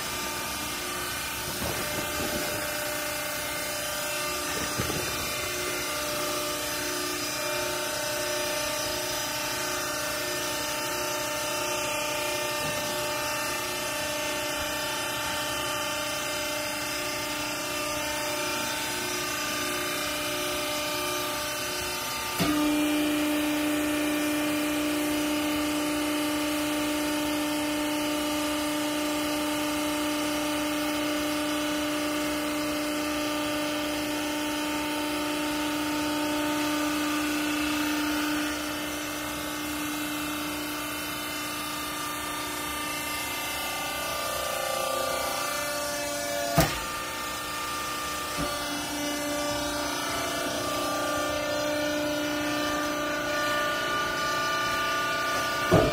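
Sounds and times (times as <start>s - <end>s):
hydraulic pump motor humming: 0.0s - 55.9s.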